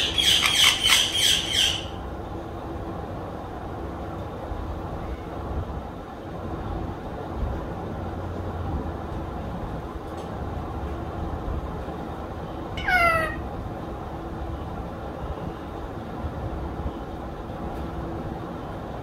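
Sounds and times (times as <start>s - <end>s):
parrot call: 0.0s - 2.0s, 12.8s - 13.5s.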